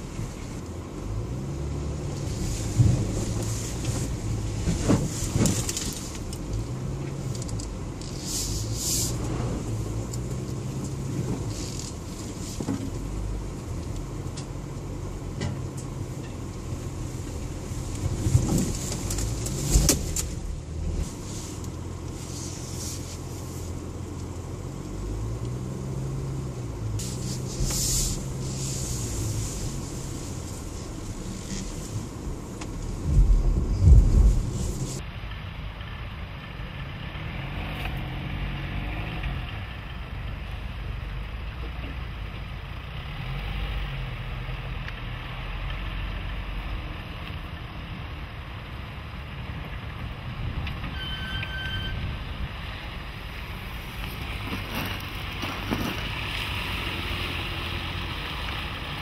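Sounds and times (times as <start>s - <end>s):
suv engine from inside cabin: 0.0s - 45.0s
vehicle jolting over bumps: 27.0s - 35.0s, 53.5s - 58.0s.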